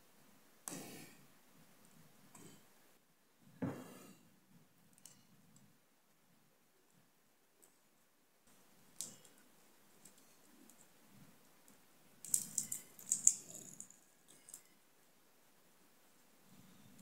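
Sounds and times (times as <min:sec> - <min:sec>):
metal tool clicking on small parts: 0:12.2 - 0:14.7.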